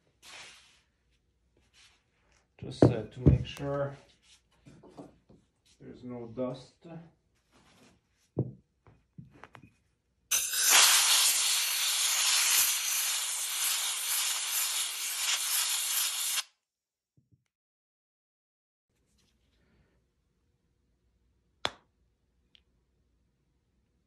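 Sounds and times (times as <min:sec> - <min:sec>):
compressed air blow gun hissing: 0:10.3 - 0:16.4.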